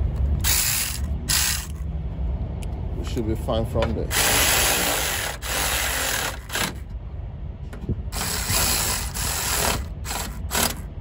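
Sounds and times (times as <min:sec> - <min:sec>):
electric ratchet whirring: 0:00.4 - 0:01.8, 0:04.1 - 0:06.9, 0:08.1 - 0:10.9.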